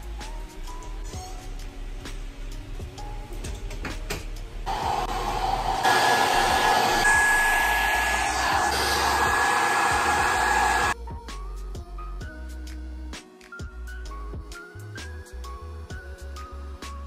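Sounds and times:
hair dryer blowing: 4.7s - 11.0s.

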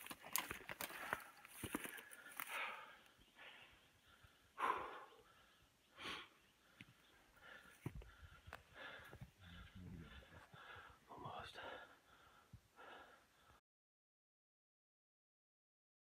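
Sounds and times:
footsteps on rock and brush: 0.0s - 2.7s
person breathing heavily: 0.8s - 13.6s.

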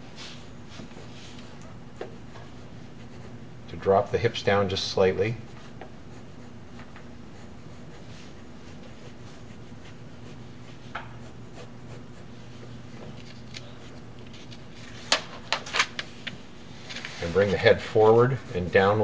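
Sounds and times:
low steady hum: 0.0s - 19.0s
pencil sketching on paper: 2.0s - 3.4s, 5.4s - 12.7s, 17.2s - 19.0s.

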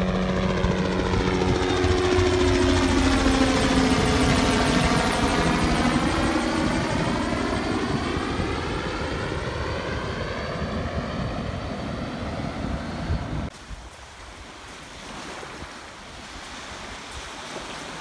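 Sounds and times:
helicopter flying over: 0.0s - 13.5s.

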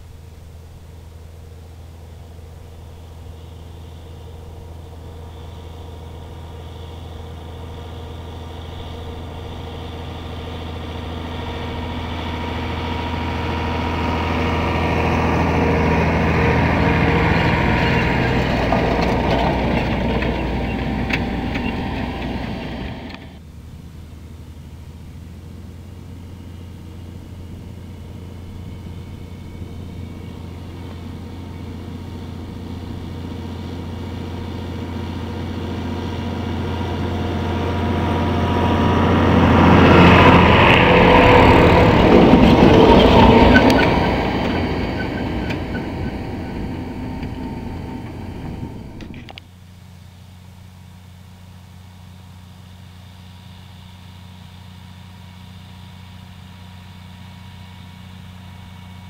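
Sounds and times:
tractor diesel engine running: 0.0s - 59.0s
planter row units noise: 2.4s - 23.4s, 26.2s - 49.4s.

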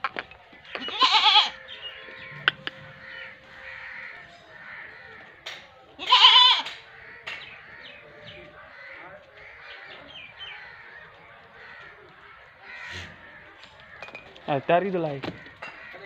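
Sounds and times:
goat bleating: 0.8s - 3.9s, 6.0s - 6.7s.

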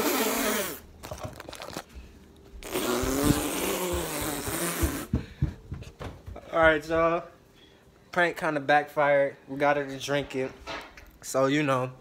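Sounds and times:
person making disgusted noises: 2.6s - 5.1s.

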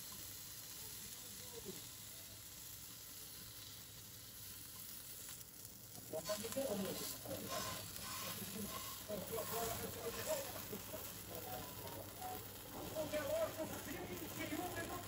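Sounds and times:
cheese sizzling in a frying pan: 0.0s - 15.0s
tongs moving skewers: 3.0s - 15.0s.

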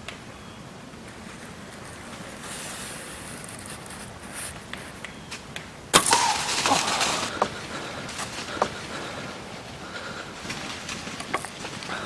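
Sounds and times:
rustling in dry leaves: 0.4s - 12.0s
loud crash of leaves: 5.9s - 7.4s.

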